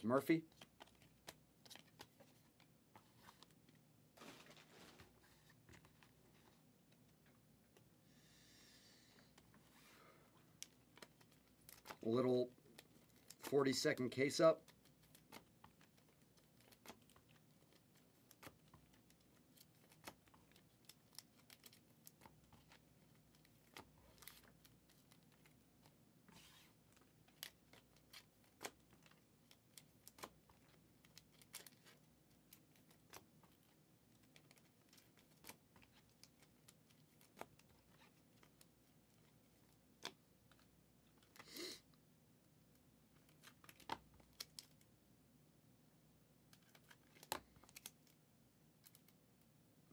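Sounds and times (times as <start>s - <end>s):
wrapper rustling: 4.2s - 5.5s.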